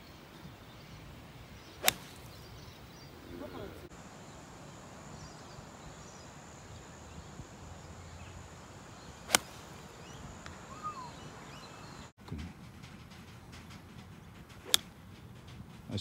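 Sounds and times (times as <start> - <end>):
faint outdoor background: 0.0 - 16.0
golf club striking ball: 1.8 - 2.5, 9.3 - 10.6, 14.6 - 15.0.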